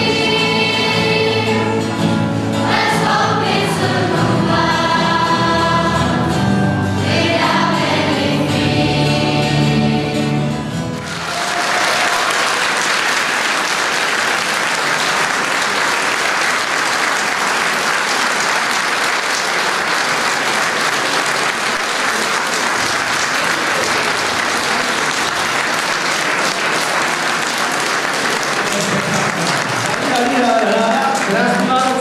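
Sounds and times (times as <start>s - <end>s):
audience applause: 11.0s - 32.0s.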